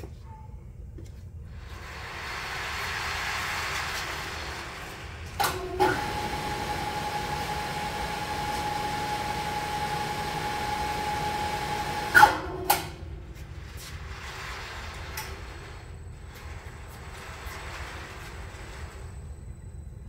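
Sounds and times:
hoist motor whine: 5.3 - 13.6.

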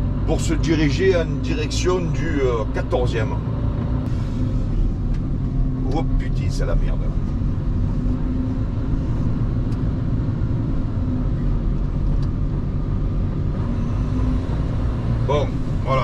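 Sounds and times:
truck engine drone: 0.0 - 16.0.

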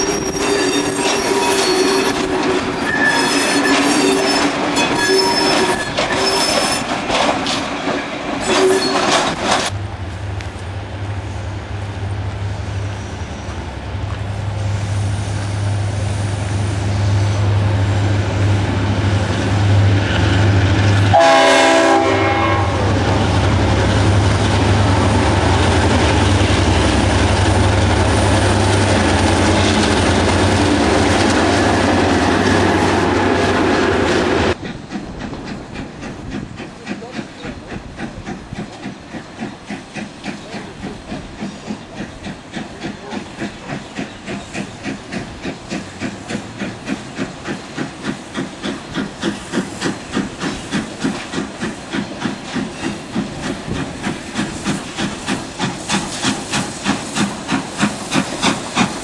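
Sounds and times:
steam locomotive chuffing: 0.0 - 10.0, 11.1 - 59.0
diesel locomotive engines droning: 0.0 - 59.0
train horn blast: 21.0 - 23.2.

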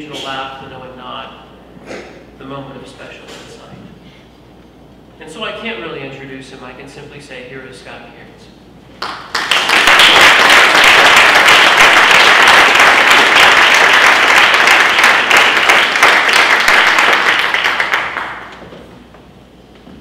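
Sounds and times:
audience applauding: 9.0 - 18.7.

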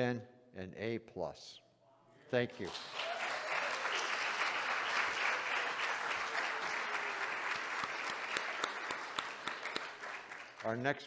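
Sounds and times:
audience applauding: 2.6 - 10.8.

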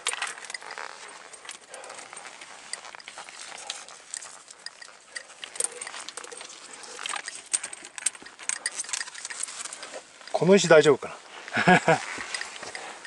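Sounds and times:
steel chain rattling against rock: 0.0 - 13.0.

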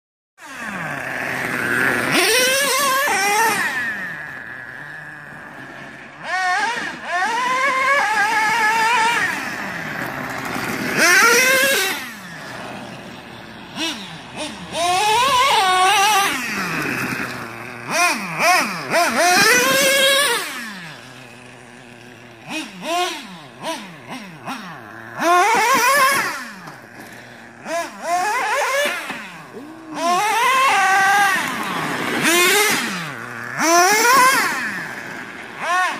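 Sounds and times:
small two-stroke engine revving: 0.4 - 35.9.

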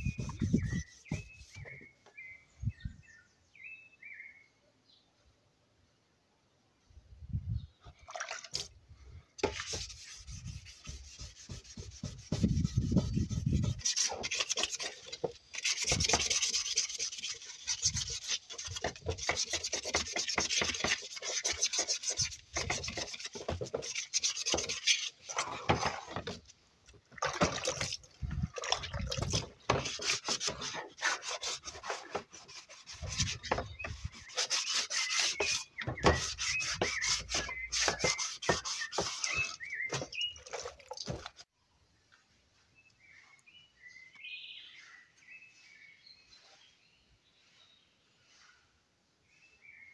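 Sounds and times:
sandpaper rubbing: 0.0 - 1.8, 9.4 - 25.9, 29.3 - 40.8.

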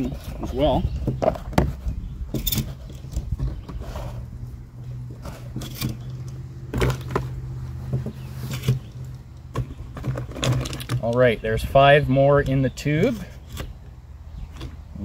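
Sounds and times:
handling clicks and knocks: 0.0 - 11.4
steady low hum: 0.0 - 15.0.

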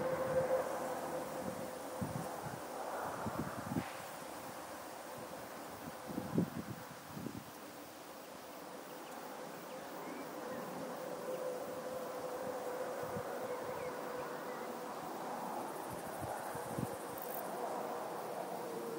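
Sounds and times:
wind bumps on microphone: 1.4 - 4.1.

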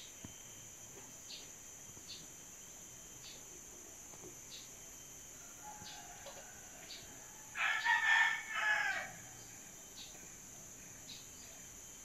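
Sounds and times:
rooster crowing: 5.4 - 9.5.

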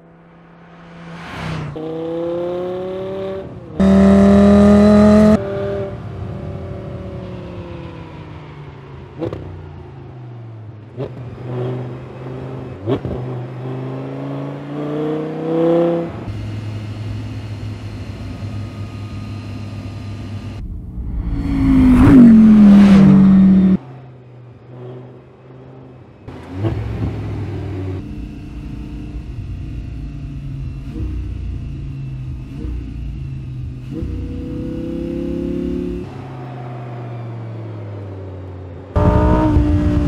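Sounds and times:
car passing by: 0.0 - 3.4, 20.6 - 24.0
sports car engine revving: 0.1 - 6.0, 10.8 - 23.8, 24.6 - 36.4, 38.9 - 40.0.

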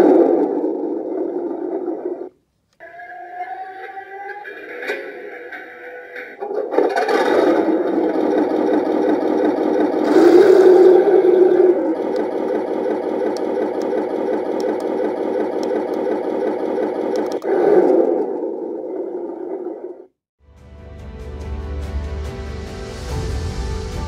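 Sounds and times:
simulated tank engine from small speaker: 0.0 - 20.1.

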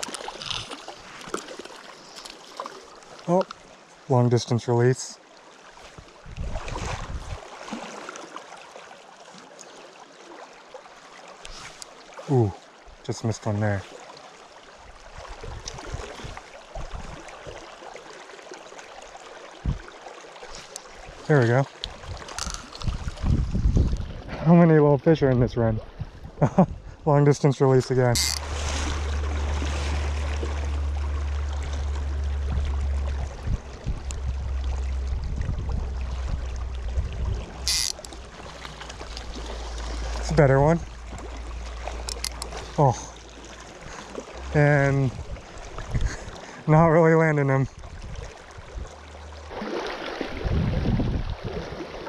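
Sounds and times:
creek water rushing: 0.0 - 23.4, 27.0 - 52.0
dull low thumps: 27.9 - 38.3
low rumble: 27.9 - 46.2.

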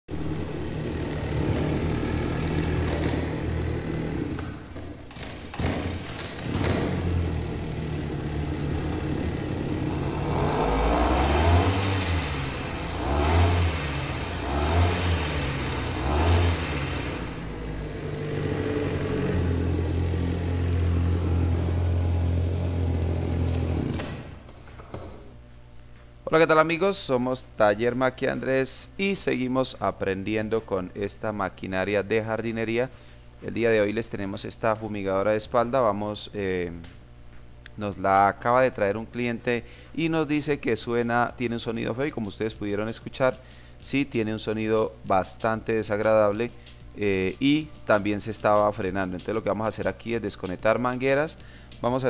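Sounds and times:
small two-stroke engine revving: 0.1 - 24.4.

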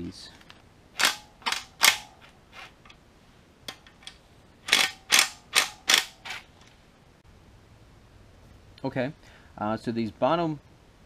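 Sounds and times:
wrench clicking on bolts: 4.7 - 6.4.

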